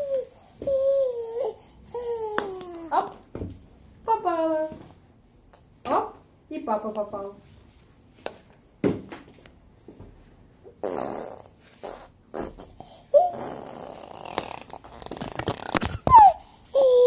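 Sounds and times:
baby spluttering: 10.8s - 16.4s
baby squealing: 11.0s - 17.0s.

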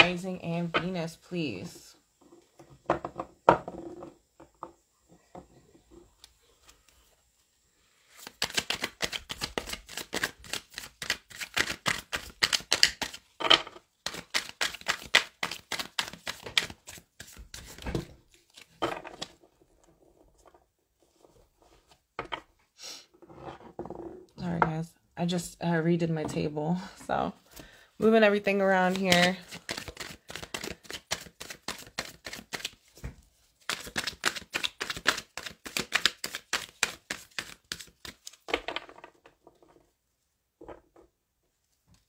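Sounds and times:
cards being shuffled: 8.1s - 13.4s, 14.0s - 19.4s, 28.4s - 38.9s
cards tapping: 8.2s - 13.3s, 14.0s - 19.3s, 28.8s - 32.8s, 33.6s - 38.9s.

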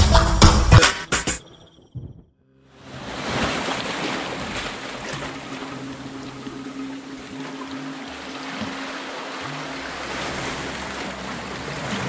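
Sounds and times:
background music with bass line: 0.0s - 1.4s
sea water washing: 2.8s - 12.0s.

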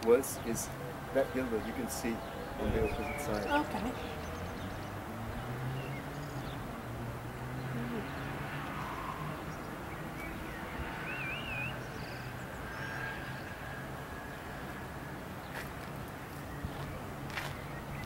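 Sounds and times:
small birds chirping: 0.0s - 14.6s, 15.4s - 18.0s
bird warbling trill: 7.7s - 13.0s.

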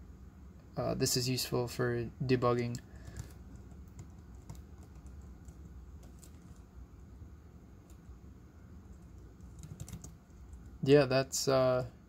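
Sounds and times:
low steady hum: 0.0s - 12.0s
laptop keyboard clicks: 9.4s - 10.2s.

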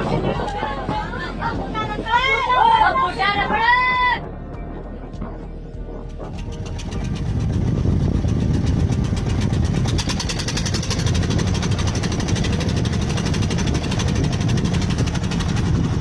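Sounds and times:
tractor diesel engine clattering: 6.0s - 16.0s.

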